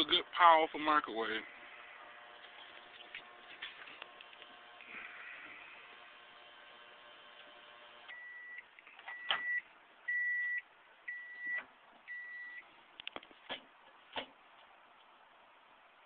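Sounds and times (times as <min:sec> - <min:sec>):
microwave oven humming: 0:00.0 - 0:12.7
microwave short beeps: 0:08.1 - 0:12.6.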